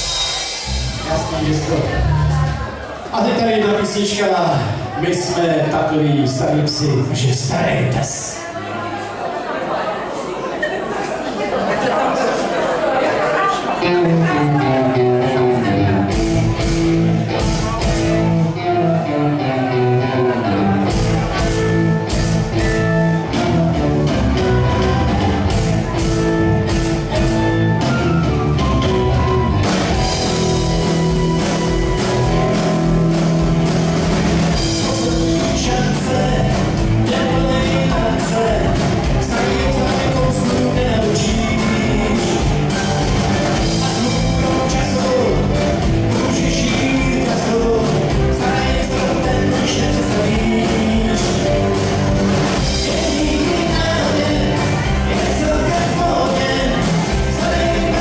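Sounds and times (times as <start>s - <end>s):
drum kit: 0.0s - 3.2s, 14.0s - 19.0s, 20.3s - 58.0s
electric guitars: 13.7s - 58.0s
person singing: 34.5s - 58.0s.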